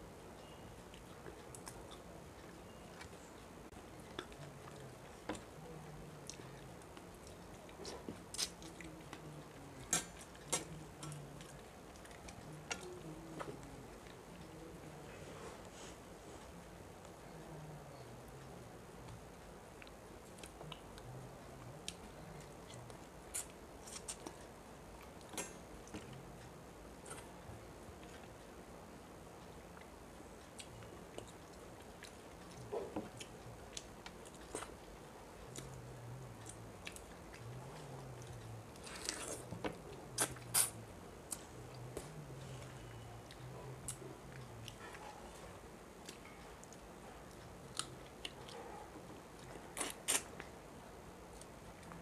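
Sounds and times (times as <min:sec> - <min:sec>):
chewing and mouth smacks: 0:00.9 - 0:15.0, 0:46.0 - 0:50.5
mouth clicks: 0:40.1 - 0:42.1
person chewing and crunching: 0:49.4 - 0:50.4.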